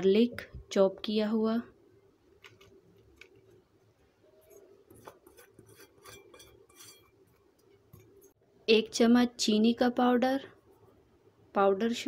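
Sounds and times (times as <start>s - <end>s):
glass bowl clinking and scraping: 4.4s - 8.4s.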